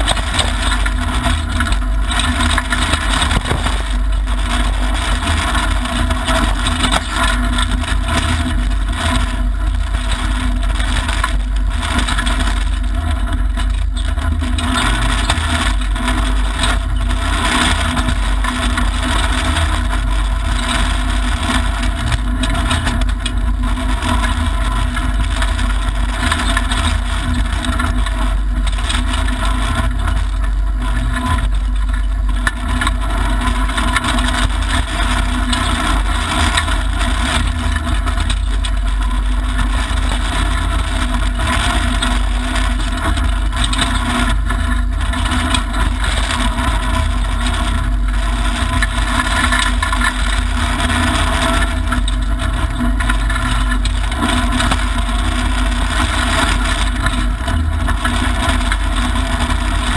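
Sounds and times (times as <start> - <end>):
tyres on gravel: 0.0 - 8.6
car engine under load: 0.0 - 59.9.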